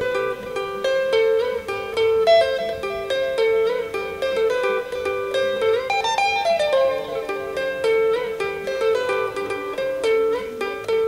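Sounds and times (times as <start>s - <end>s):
electric guitar lead line: 0.0s - 11.0s.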